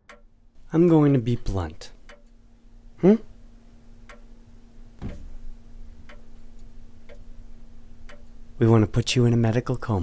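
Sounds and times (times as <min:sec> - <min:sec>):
faint steady hum: 0:00.0 - 0:10.0
clock ticking: 0:00.1 - 0:02.4, 0:04.0 - 0:04.4, 0:05.1 - 0:09.1
dull low thump: 0:05.0 - 0:05.6.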